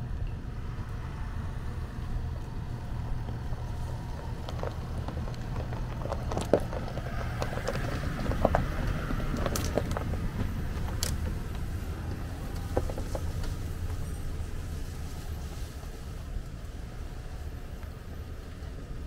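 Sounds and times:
low engine rumble: 0:00.0 - 0:19.0
stones cracking under tyres: 0:02.2 - 0:15.9.

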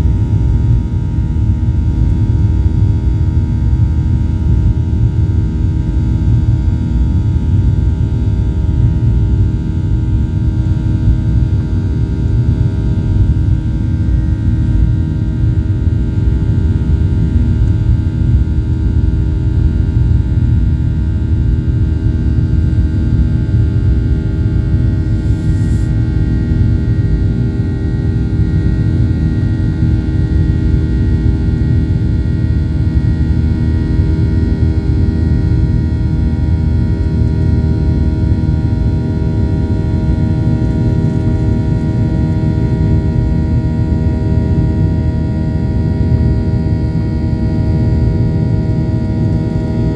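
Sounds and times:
constant hum tones: 0:00.0 - 0:49.9
airliner engines roaring: 0:22.3 - 0:49.9.

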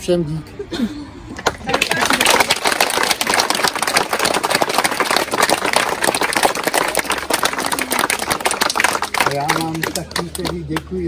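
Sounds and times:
crowd applauding: 0:01.4 - 0:11.0.

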